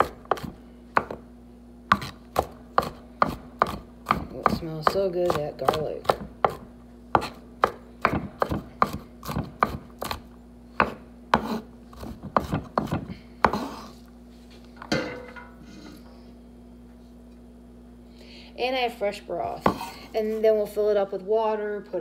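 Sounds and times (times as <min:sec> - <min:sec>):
knife chopping on wooden board: 0:00.0 - 0:01.2, 0:01.9 - 0:13.9, 0:19.6 - 0:20.0
knife scraping board: 0:10.8 - 0:14.1.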